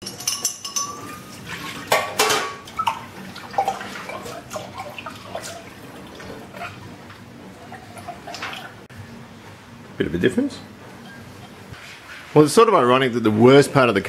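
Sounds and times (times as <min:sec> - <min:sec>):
spoon clinking in a mug: 0:00.0 - 0:01.3
water splashing into a sink: 0:01.3 - 0:06.8, 0:07.7 - 0:08.8.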